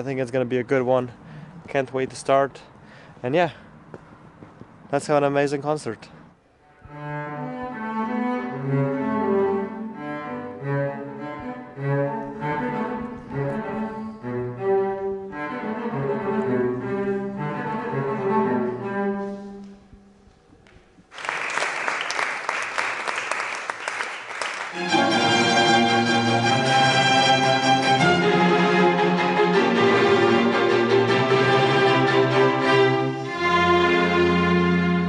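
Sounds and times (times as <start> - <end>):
cello playing melody: 6.5 - 20.1, 24.7 - 35.0
audience applause: 21.1 - 25.0.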